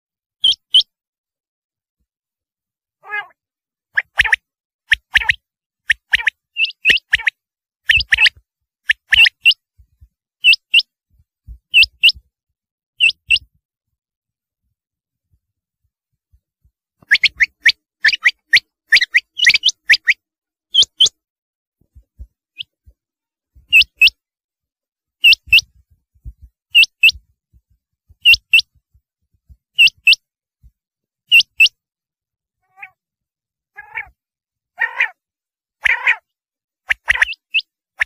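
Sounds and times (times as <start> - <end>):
quail calling: 3.0 - 3.4, 17.0 - 21.2, 32.6 - 33.0, 33.8 - 34.2, 34.8 - 35.2, 35.8 - 36.3, 36.9 - 37.6
lower rougher bird calls: 33.7 - 34.2, 34.8 - 35.2.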